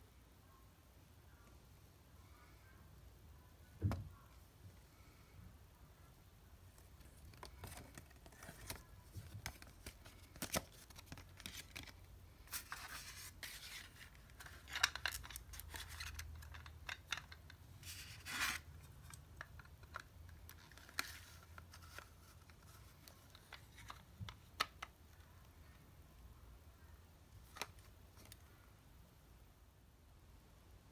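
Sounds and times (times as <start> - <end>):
paper insert rustling: 6.8 - 24.8.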